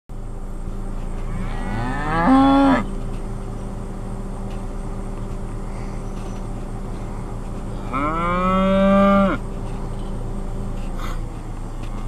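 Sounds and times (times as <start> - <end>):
cow mooing: 1.3 - 2.9, 7.8 - 9.4.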